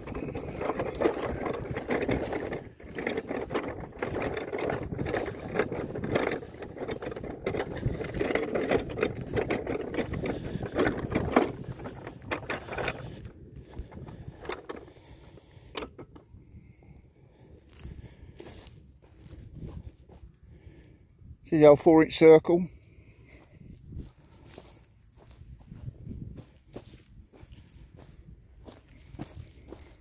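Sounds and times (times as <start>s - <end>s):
cart rattling and clattering: 0.0s - 16.2s
footsteps: 0.0s - 16.2s, 17.6s - 20.4s, 23.2s - 30.0s.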